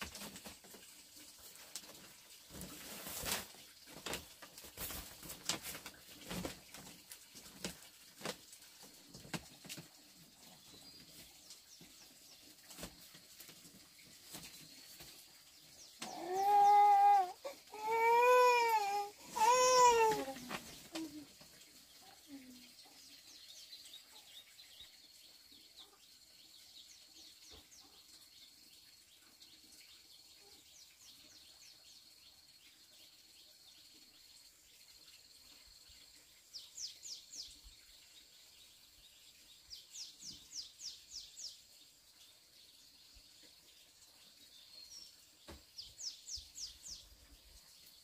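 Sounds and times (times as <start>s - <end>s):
bird chirping: 21.8s - 48.0s.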